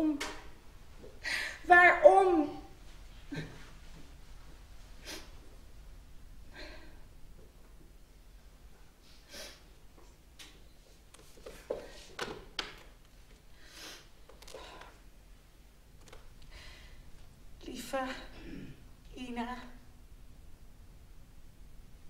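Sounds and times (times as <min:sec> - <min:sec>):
woman breathing and sniffing: 0:05.0 - 0:05.4, 0:09.0 - 0:09.7, 0:13.5 - 0:15.0.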